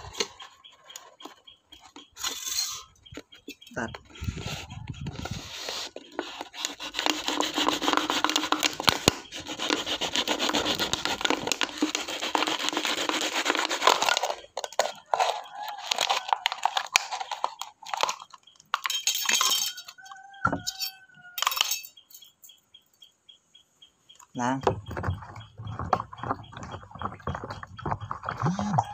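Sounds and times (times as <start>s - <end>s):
knife sawing through metal can: 4.3s - 18.2s.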